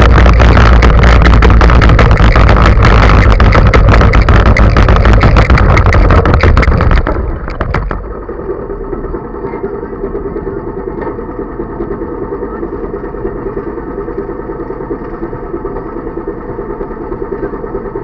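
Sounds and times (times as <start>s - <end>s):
go-kart engine running: 0.0s - 18.0s.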